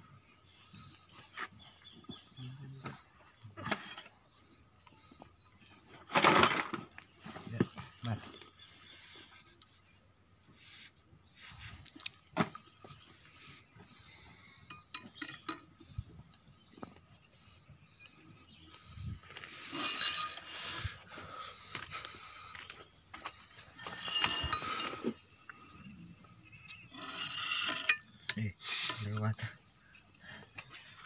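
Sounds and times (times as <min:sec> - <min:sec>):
steel tools clinking on metal: 0:14.6 - 0:15.9, 0:19.6 - 0:20.9, 0:23.7 - 0:25.1, 0:26.6 - 0:29.2.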